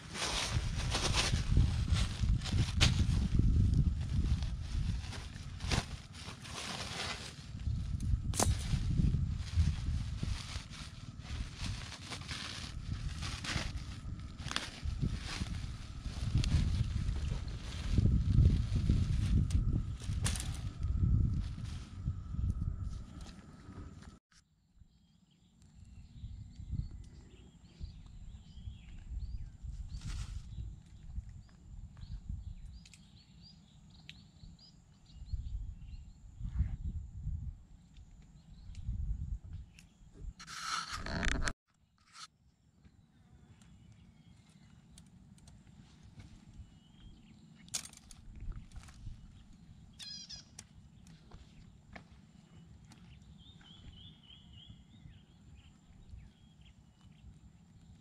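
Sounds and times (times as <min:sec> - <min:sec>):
wind rumble on microphone: 0:00.0 - 0:24.2, 0:25.8 - 0:41.6, 0:45.8 - 0:58.0
short rustle: 0:04.0 - 0:19.4
low rumble: 0:07.4 - 0:24.2
small birds chirping: 0:24.9 - 0:36.2, 0:42.7 - 0:58.0.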